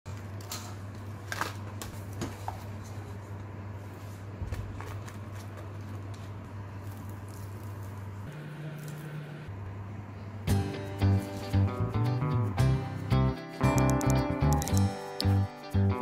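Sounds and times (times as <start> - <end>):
steady low hum: 1.9 - 13.3.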